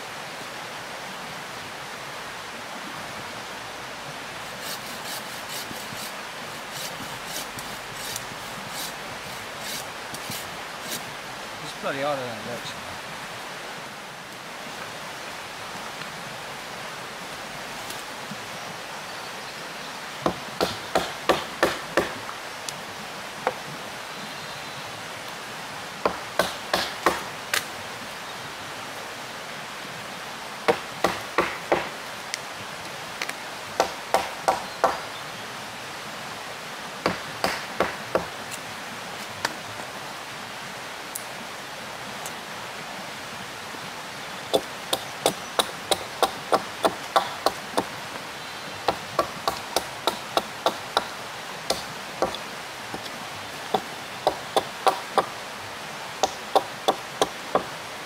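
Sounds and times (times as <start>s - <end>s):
hand tool striking wood: 9.6s - 11.1s, 20.3s - 22.2s, 26.1s - 27.3s, 30.7s - 32.0s, 33.8s - 35.0s, 37.1s - 38.3s, 44.6s - 47.9s, 48.9s - 51.1s, 51.7s - 53.0s, 53.7s - 55.3s, 56.2s - 57.7s.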